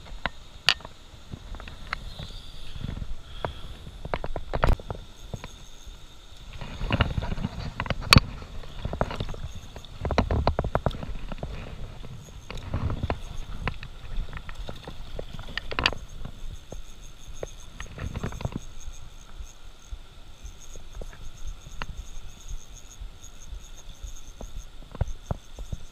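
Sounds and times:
water moving: 0.0s - 19.5s.

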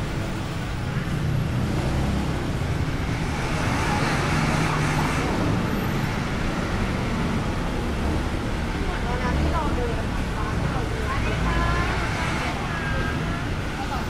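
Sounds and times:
city street traffic: 0.0s - 14.0s.

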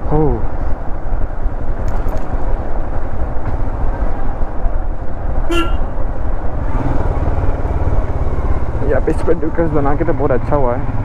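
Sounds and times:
road and wind noise: 0.0s - 11.0s
motorcycle engine running: 5.0s - 11.0s.

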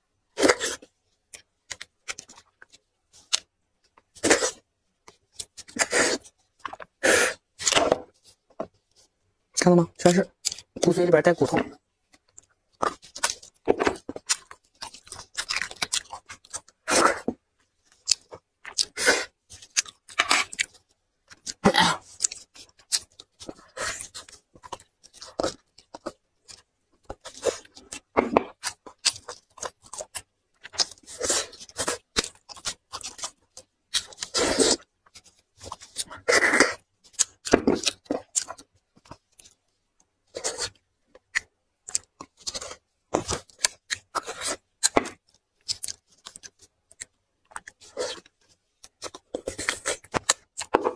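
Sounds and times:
chewing and tearing meat: 12.1s - 50.9s.

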